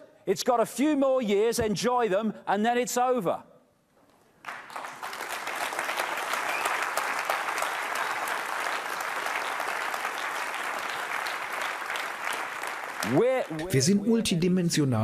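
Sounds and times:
audience clapping: 4.4 - 14.0.

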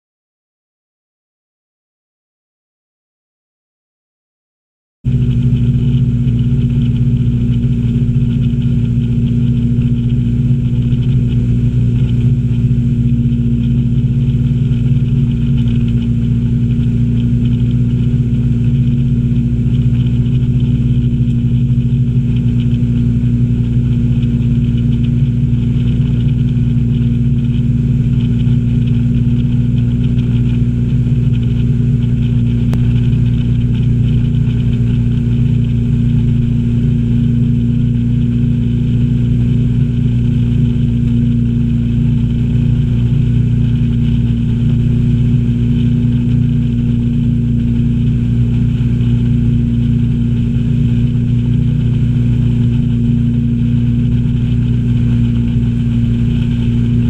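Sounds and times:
boat engine drone: 5.1 - 57.0.

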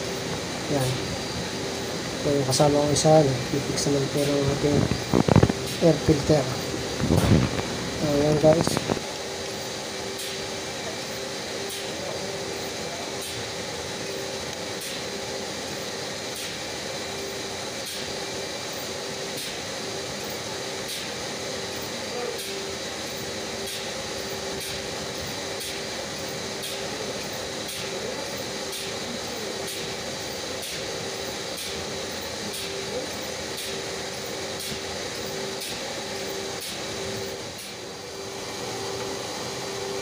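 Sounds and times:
oil pump humming and hissing: 0.0 - 40.0.

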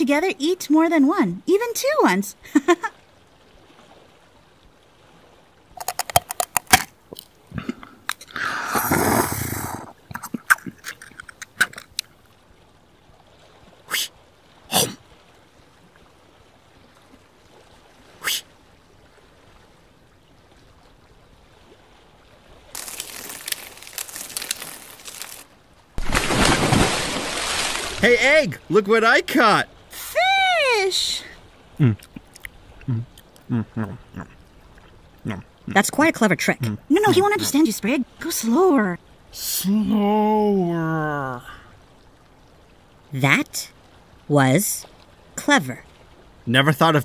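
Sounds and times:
rustle: 2.5 - 35.7
crunching and clicking effects: 5.8 - 7.3, 22.8 - 25.4
fish splashing water: 22.7 - 28.2.

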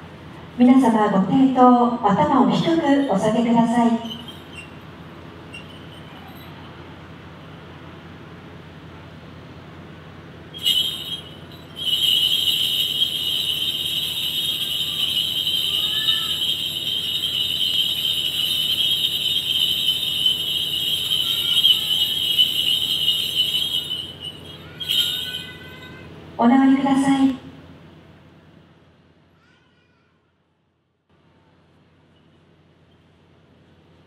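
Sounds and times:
cluster of small bells jingling: 3.8 - 4.8, 5.5 - 6.8, 10.6 - 26.0.

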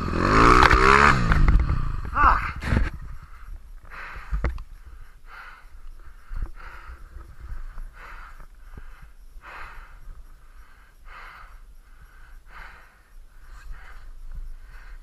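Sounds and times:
person breathing hard: 2.0 - 15.0.

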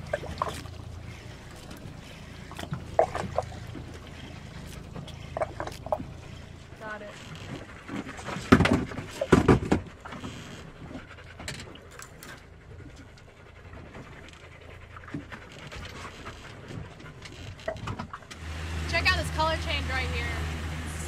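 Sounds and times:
dog panting: 10.7 - 17.3.

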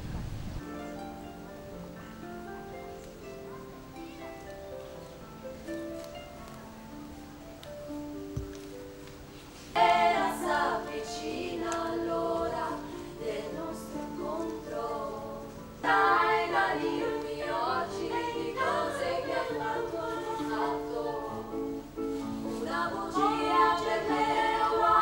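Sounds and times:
vocal group singing a cappella: 9.7 - 25.0.

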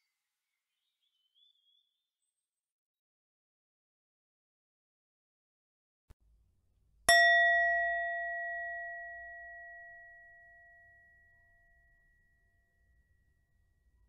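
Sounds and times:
singing bowl ringing: 7.1 - 14.0.

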